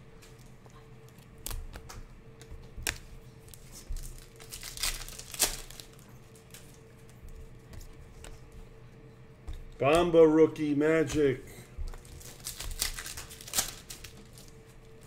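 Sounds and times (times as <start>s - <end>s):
crinkling card packaging: 0.1s - 8.5s, 11.9s - 15.0s.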